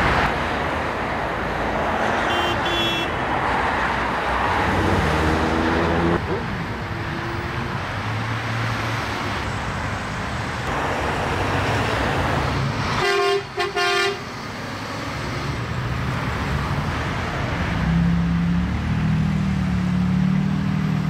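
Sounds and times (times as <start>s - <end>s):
highway traffic passing: 0.0s - 21.0s
vehicle horn honking: 2.2s - 3.2s, 13.0s - 14.2s.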